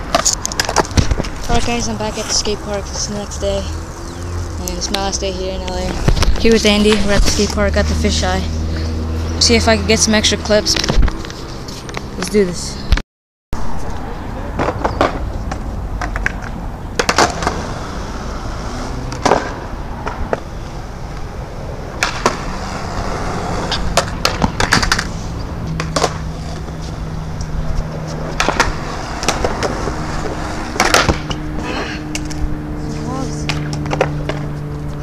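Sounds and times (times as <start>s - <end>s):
skateboard clacks: 0.0s - 1.7s, 14.5s - 18.0s, 19.1s - 20.4s, 21.9s - 22.7s, 23.7s - 25.1s, 25.8s - 26.4s, 28.2s - 31.4s, 33.5s - 34.5s
skateboard wheels rolling on concrete: 0.0s - 13.0s, 13.6s - 35.0s.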